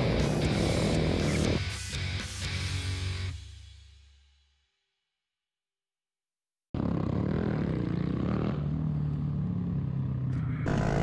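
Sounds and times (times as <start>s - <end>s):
motorcycle engine running: 6.8s - 11.0s.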